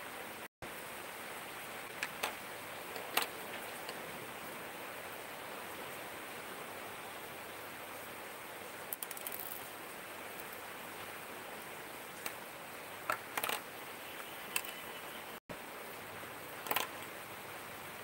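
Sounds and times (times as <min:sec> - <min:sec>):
steady hiss: 0:00.0 - 0:18.0
pen parts clicking and tapping: 0:08.9 - 0:09.6, 0:13.1 - 0:13.6, 0:14.5 - 0:14.8, 0:16.6 - 0:17.1.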